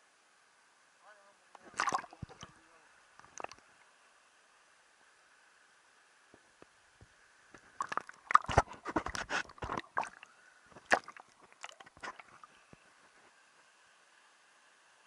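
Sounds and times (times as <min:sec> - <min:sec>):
water splashing and sloshing: 0:01.6 - 0:03.9, 0:07.6 - 0:13.3.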